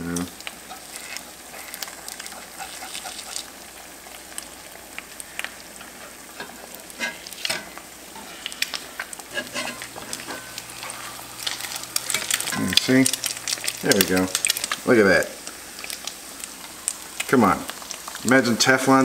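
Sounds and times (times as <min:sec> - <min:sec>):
eggs sizzling in a pan: 0:00.0 - 0:19.0
metal spatula scraping a pan: 0:00.7 - 0:03.1, 0:05.8 - 0:08.4, 0:09.0 - 0:12.6.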